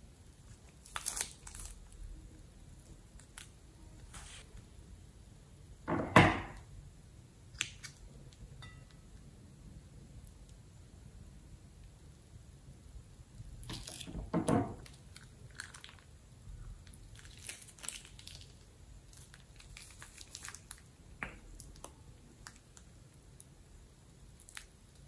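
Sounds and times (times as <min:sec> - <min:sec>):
slime squelching and crackling: 0:00.4 - 0:04.5, 0:13.4 - 0:23.6, 0:24.2 - 0:25.0
plastic bag crinkling: 0:00.6 - 0:02.0, 0:14.8 - 0:16.2, 0:16.8 - 0:20.9.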